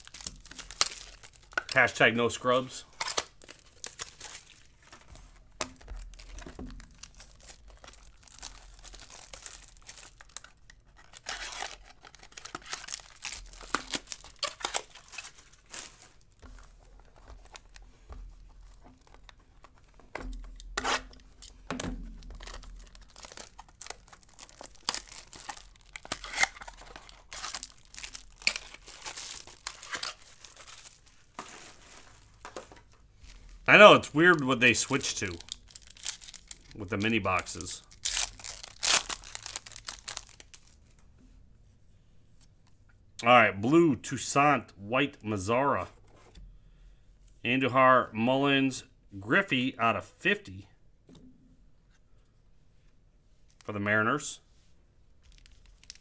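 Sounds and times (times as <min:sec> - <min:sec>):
foil wrappers crinkling and tearing: 0:00.0 - 0:41.0, 0:55.2 - 0:56.0.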